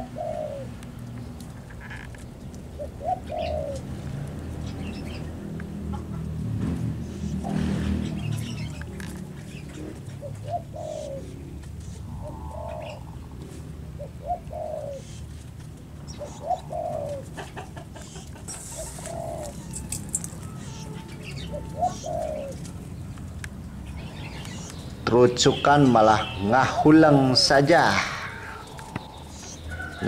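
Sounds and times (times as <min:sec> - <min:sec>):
dove cooing: 0:00.0 - 0:01.2, 0:02.6 - 0:04.0, 0:07.0 - 0:30.0.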